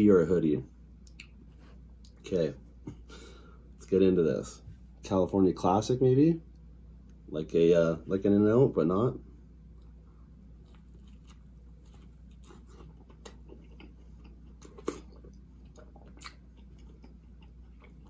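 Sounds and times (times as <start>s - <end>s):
person chewing food: 9.7s - 18.0s.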